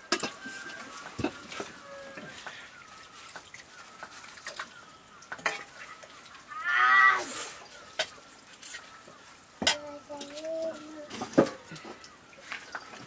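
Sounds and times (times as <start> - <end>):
cooking utensils clicking and knocking: 0.0 - 2.6, 3.4 - 5.8, 9.6 - 10.3.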